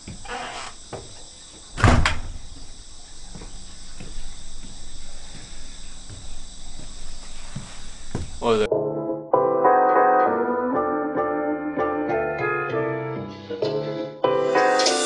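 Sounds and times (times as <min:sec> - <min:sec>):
wooden door shutting: 0:00.0 - 0:02.8
faint knocks: 0:00.0 - 0:08.4
insect chorus chirring: 0:00.0 - 0:08.7.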